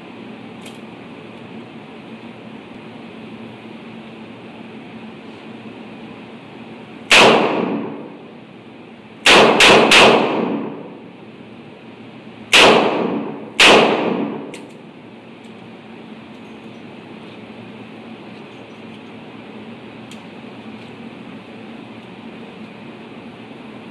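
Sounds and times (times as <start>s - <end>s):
revolver shots with echo: 7.1s - 8.1s, 12.6s - 14.5s.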